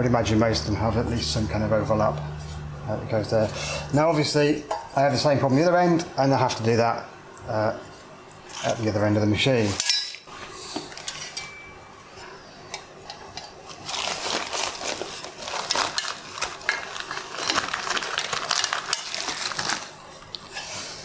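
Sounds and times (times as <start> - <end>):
plastic film crinkling: 13.6 - 20.4.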